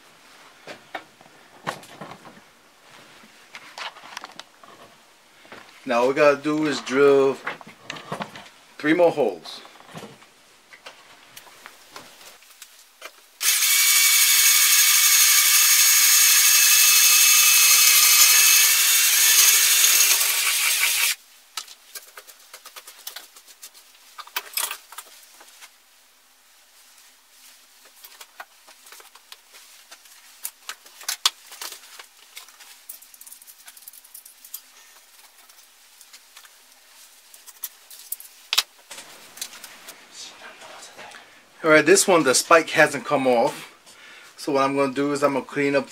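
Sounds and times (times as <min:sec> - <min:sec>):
power drill boring metal: 0:13.4 - 0:21.2.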